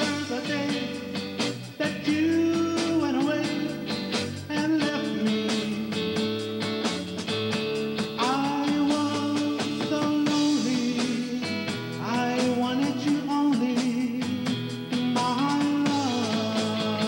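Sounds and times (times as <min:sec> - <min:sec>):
man singing: 0:00.0 - 0:06.4, 0:08.1 - 0:17.0
drum kit: 0:00.0 - 0:17.0
electric guitars: 0:00.0 - 0:17.0.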